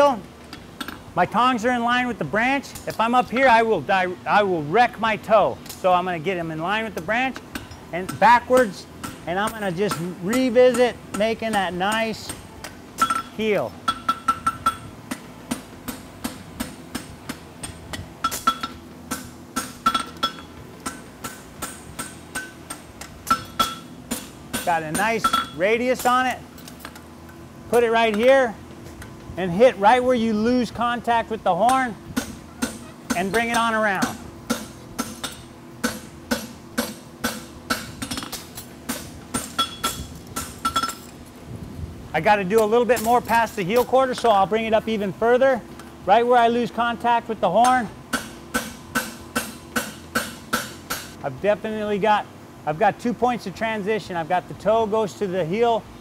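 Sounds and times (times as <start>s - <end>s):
hammer striking metal on anvil: 13.0s - 26.1s, 31.7s - 41.1s, 47.6s - 51.2s.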